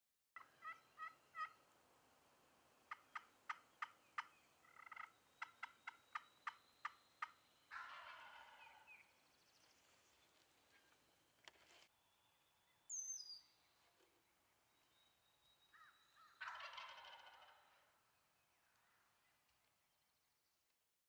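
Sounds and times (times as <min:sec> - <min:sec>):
wild turkey gobbling: 0:00.4 - 0:01.6, 0:02.9 - 0:09.2, 0:15.7 - 0:18.0.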